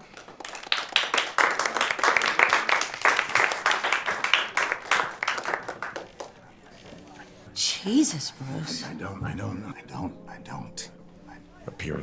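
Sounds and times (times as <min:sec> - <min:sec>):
audience applauding: 0:00.0 - 0:06.6.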